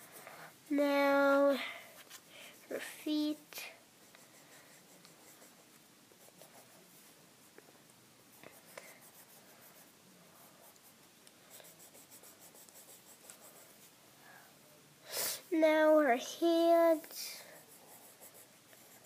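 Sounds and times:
colored pencil scratching on paper: 0.0 - 7.1, 8.3 - 13.9, 17.3 - 19.0.

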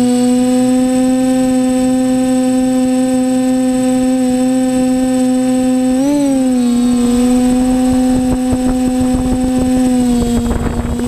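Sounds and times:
drone propellers humming: 0.0 - 11.0
faint high whine: 4.0 - 11.0.

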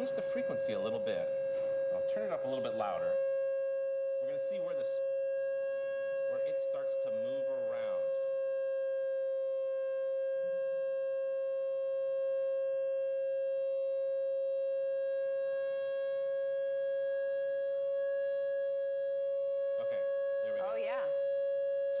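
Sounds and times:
steady mid-pitched tone: 0.0 - 10.8, 19.4 - 22.0.

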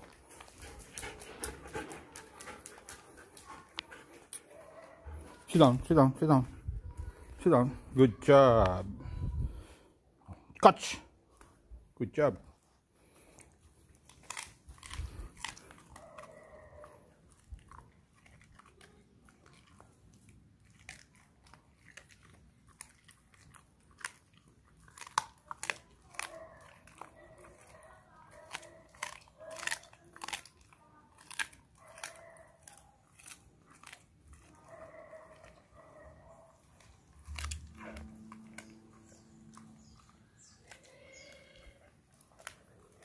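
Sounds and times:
dog chewing raw meat: 13.0 - 43.0.

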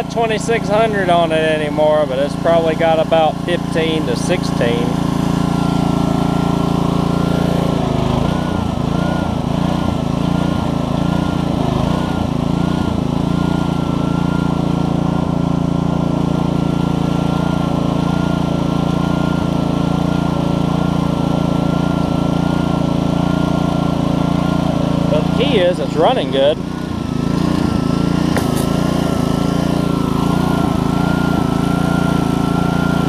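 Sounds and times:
pressure washer engine running: 0.0 - 33.0.

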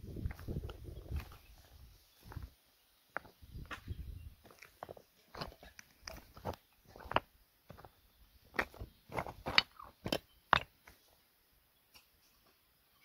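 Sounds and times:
footsteps on loose stones: 0.1 - 11.2
stones clacking and scraping: 3.1 - 11.2.

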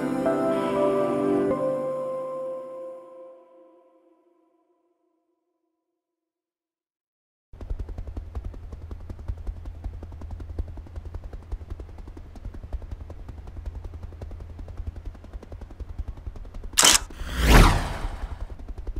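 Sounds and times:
sharp burst: 16.8 - 18.6
falling whoosh: 17.1 - 18.5.

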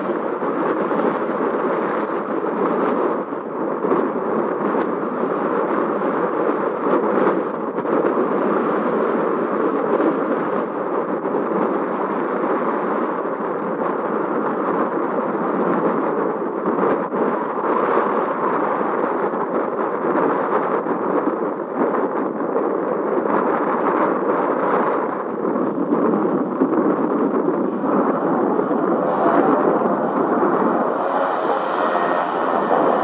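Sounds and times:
aircraft engines roaring: 25.3 - 33.0.

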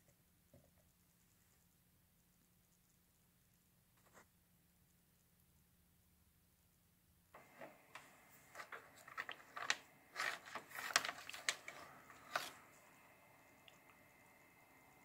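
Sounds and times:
cable handling clicks and rustles: 7.4 - 12.6.

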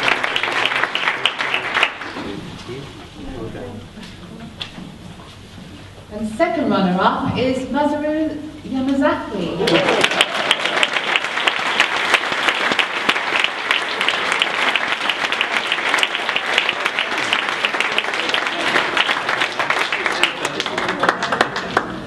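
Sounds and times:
people applauding: 0.0 - 2.5, 9.6 - 22.0.

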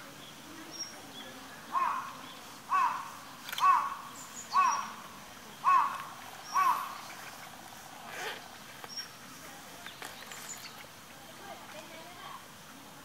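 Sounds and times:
small birds chirping: 0.0 - 12.4
bird calling: 0.7 - 9.2.

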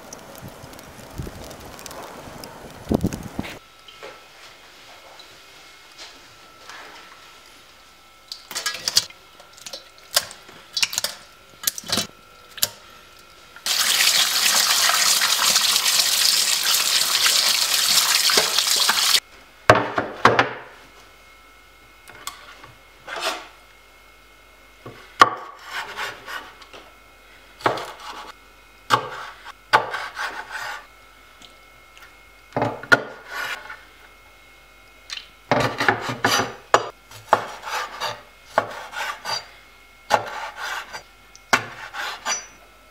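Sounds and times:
knife chopping on board: 28.9 - 30.4, 35.6 - 39.4, 40.1 - 40.9, 41.5 - 42.4.

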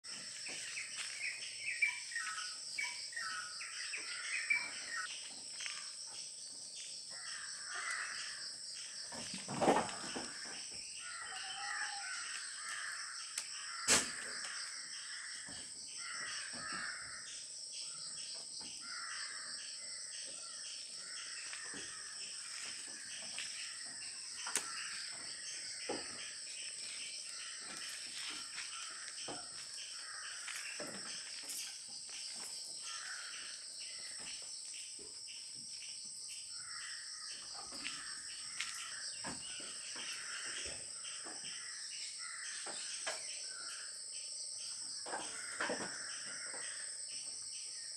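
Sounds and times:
birds calling: 0.2 - 6.0, 7.1 - 34.4.

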